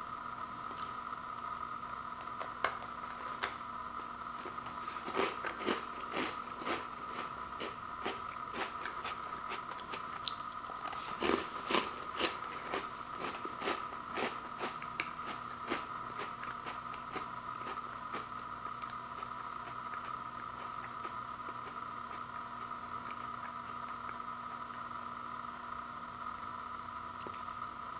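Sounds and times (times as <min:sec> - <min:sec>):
faint steady hum: 0:00.0 - 0:27.9
person crunching a cookie: 0:04.4 - 0:24.2.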